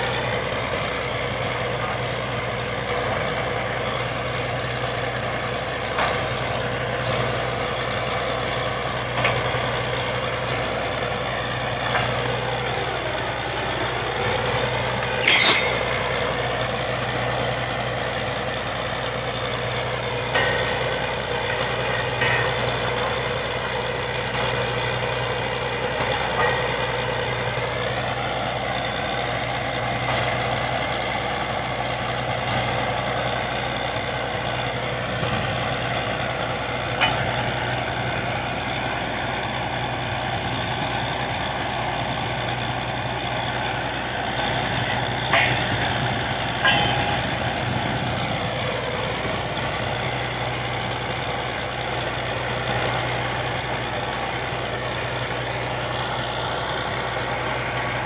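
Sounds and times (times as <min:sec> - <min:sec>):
drilling rig engine humming: 0:00.0 - 0:58.0
sharp metallic knocks: 0:15.2 - 0:16.4, 0:22.2 - 0:22.8, 0:37.0 - 0:37.5, 0:44.8 - 0:48.0.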